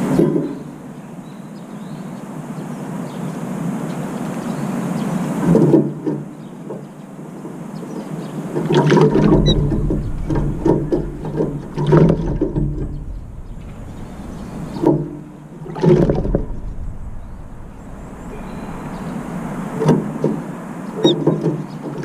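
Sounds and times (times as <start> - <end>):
bird splashing in water: 8.6 - 22.0.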